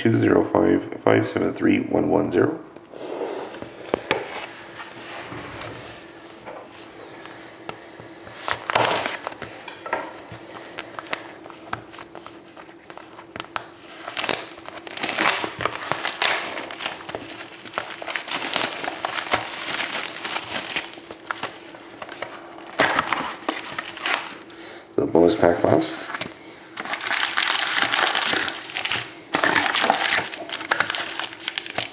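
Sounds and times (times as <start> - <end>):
faint steady hum: 0.0 - 31.9
plastic wrapping crinkling: 8.3 - 24.5, 26.0 - 31.9.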